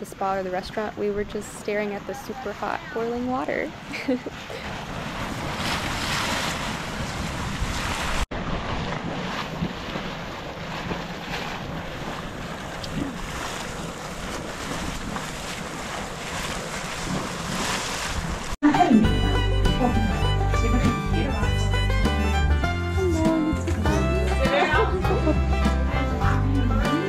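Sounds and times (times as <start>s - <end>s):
hot spring boiling and churning: 0.0s - 19.6s
wind buffeting microphone: 0.9s - 18.6s.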